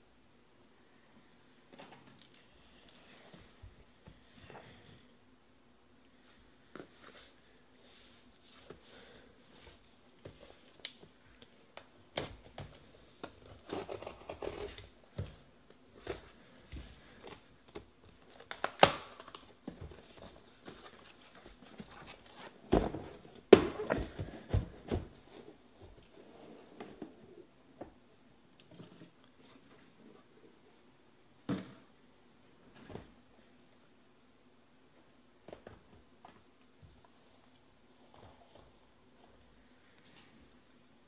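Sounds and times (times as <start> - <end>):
tape and cardboard tearing: 13.4 - 14.9.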